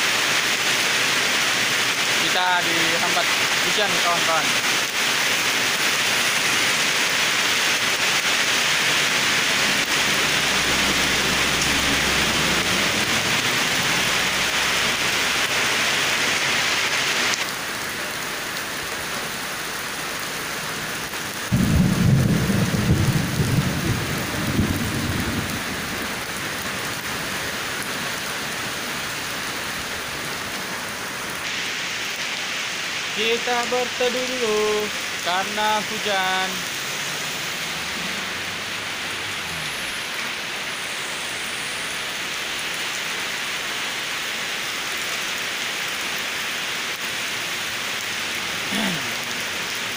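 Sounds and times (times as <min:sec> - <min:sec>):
heavy rain pouring: 0:00.0 - 0:49.9
loud low rumble: 0:09.5 - 0:14.6.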